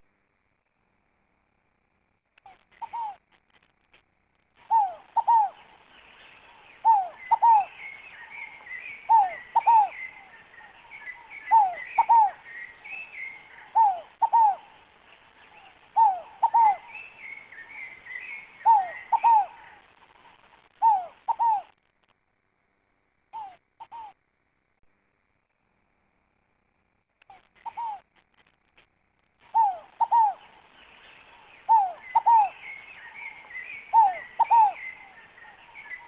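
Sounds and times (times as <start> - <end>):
dove cooing: 2.5 - 3.2, 4.6 - 5.8, 6.4 - 21.8, 23.3 - 24.2, 27.3 - 28.1, 29.4 - 36.0
high bird twittering: 29.5 - 36.0.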